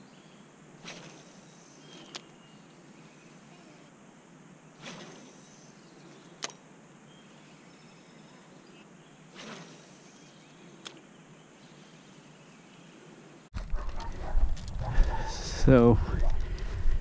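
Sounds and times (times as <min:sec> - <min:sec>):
faint insect sounds: 0:00.0 - 0:13.5.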